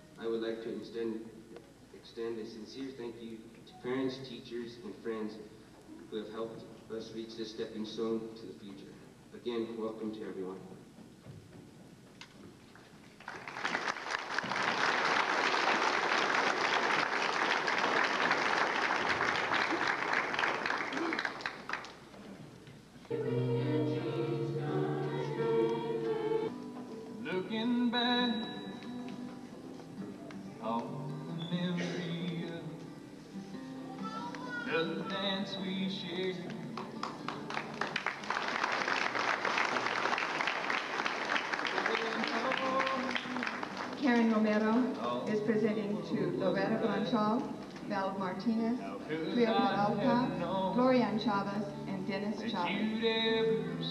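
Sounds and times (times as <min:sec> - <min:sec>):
audience applauding: 0:12.8 - 0:22.3, 0:36.5 - 0:44.3
music with singing: 0:23.1 - 0:37.0, 0:49.0 - 0:53.9.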